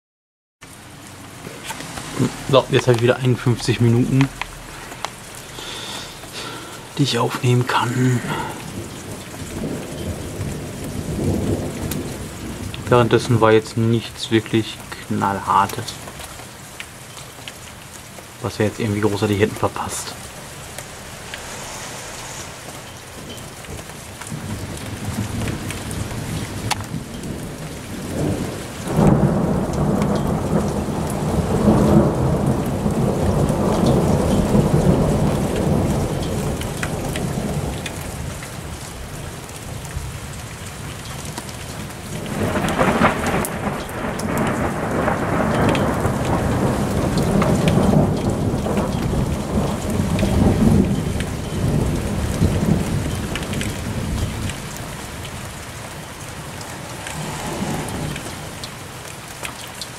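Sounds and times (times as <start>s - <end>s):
steady rain: 0.6s - 59.9s
thunder rumbling: 1.2s - 16.3s, 18.4s - 59.5s.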